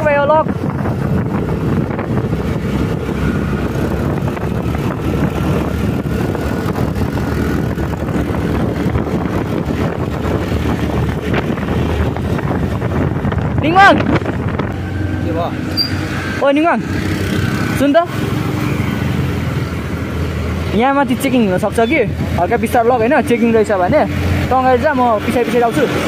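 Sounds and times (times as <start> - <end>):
wind buffeting microphone: 0.0 - 20.7, 21.6 - 26.0
road noise: 0.0 - 26.0
motor scooter engine running: 0.5 - 13.5.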